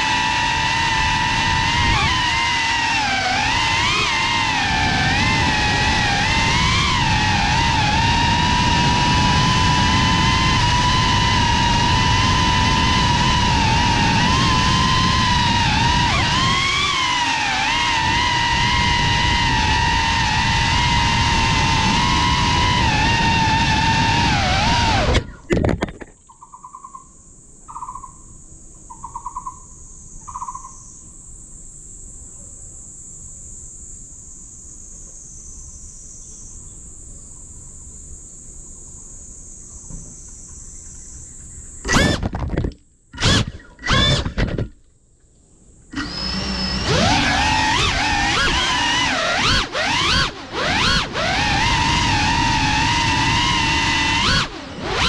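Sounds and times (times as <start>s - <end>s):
high-pitched insect buzzing: 0.0s - 25.2s, 26.3s - 32.0s
prop wash and wind noise: 0.0s - 26.0s, 45.9s - 55.0s
drone motors whining: 0.0s - 26.1s, 38.8s - 44.8s, 45.8s - 55.0s
bird pulsed calls: 26.2s - 28.3s, 28.9s - 31.1s.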